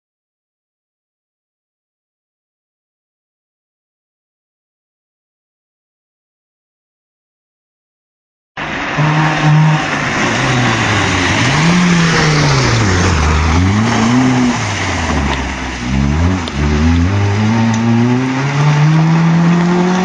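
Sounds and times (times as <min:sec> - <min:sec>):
rally car engine revving: 0:08.6 - 0:20.0.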